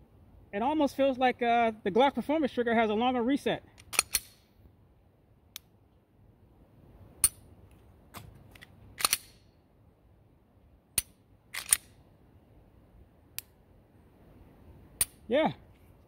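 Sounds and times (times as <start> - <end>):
pistol slide racked: 3.8 - 4.4, 8.2 - 9.4, 11.0 - 12.0
pistol trigger clicks: 3.8 - 4.4, 8.6 - 9.4, 11.0 - 11.9.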